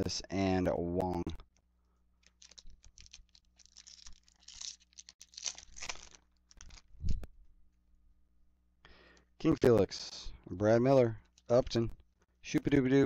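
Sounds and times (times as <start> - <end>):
foil wrapper crinkling: 2.2 - 7.1.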